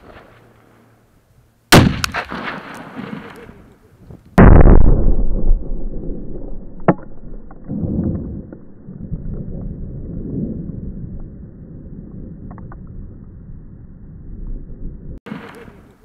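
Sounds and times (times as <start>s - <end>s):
sharp crack: 1.7s - 8.8s, 15.3s - 16.0s
wind rumbling on microphone: 3.4s - 16.0s
gunfire blast rumble: 4.4s - 8.8s.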